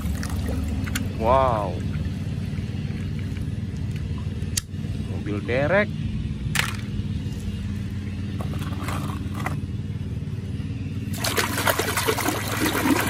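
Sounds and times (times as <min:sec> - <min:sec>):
water splashing in a basin: 0:00.0 - 0:03.4, 0:11.1 - 0:13.0
low hum: 0:00.0 - 0:13.0.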